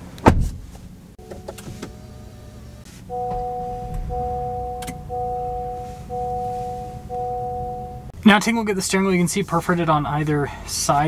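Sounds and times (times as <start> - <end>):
two-note warning chime: 3.1 - 8.1.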